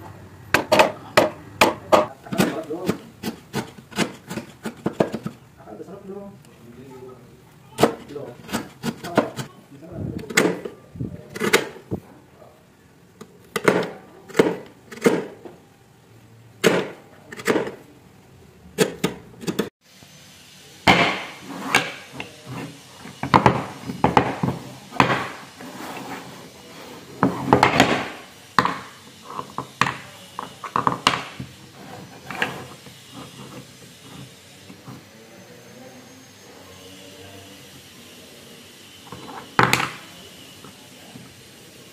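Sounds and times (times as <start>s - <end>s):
chisel chopping into wood: 16.6s - 17.8s, 20.9s - 22.0s.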